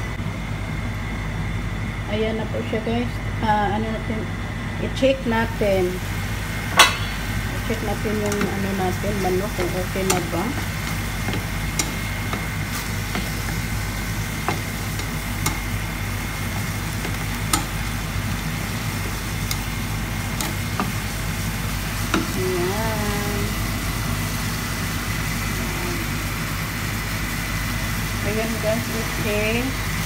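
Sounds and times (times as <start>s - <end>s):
steady low hum: 0.0s - 30.0s
broth simmering in a pan: 4.9s - 30.0s
spatula tapping and scraping pan: 8.1s - 13.7s, 14.4s - 15.7s, 16.5s - 17.8s.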